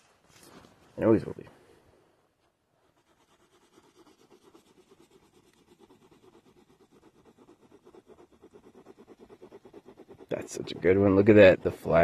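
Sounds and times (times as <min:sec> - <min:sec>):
pencil scribbling on paper: 0:02.9 - 0:12.0.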